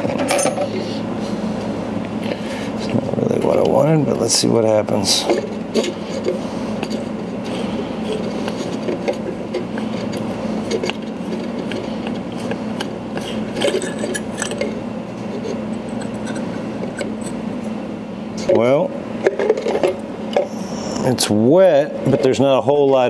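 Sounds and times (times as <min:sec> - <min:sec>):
threads scraping: 0:02.8 - 0:17.8.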